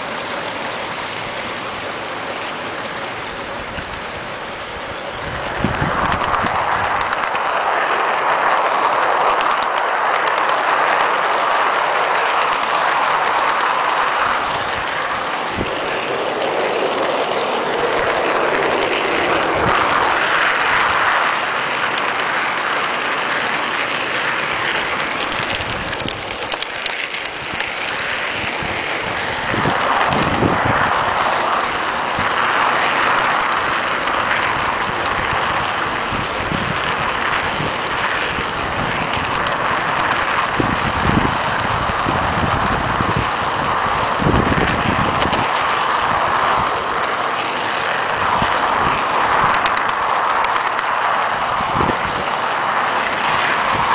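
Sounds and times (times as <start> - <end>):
model train wheels rattling on rail: 0.0 - 53.9.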